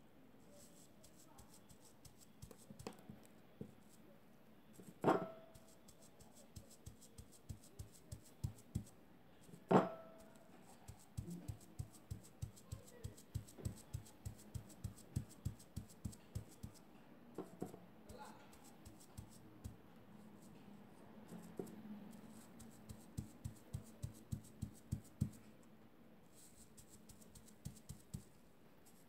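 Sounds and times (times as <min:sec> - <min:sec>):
paint pad tapping on fabric: 0:02.0 - 0:03.8, 0:05.1 - 0:08.9, 0:09.7 - 0:16.8, 0:21.6 - 0:25.4, 0:26.5 - 0:28.3.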